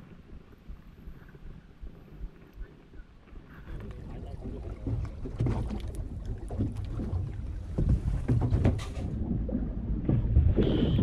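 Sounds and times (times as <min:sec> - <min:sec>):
wind and water rumble on microphone: 0:00.0 - 0:11.0
crackling knocks: 0:04.5 - 0:11.0.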